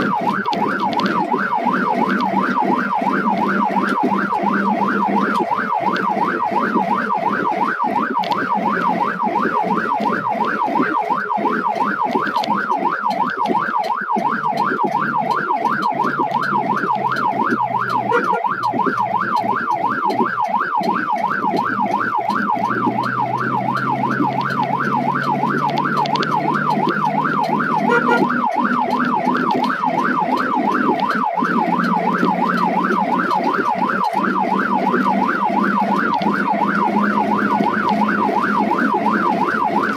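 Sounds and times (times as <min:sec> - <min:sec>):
ambulance siren yelping: 0:00.0 - 0:39.9
engine hum: 0:13.0 - 0:39.9.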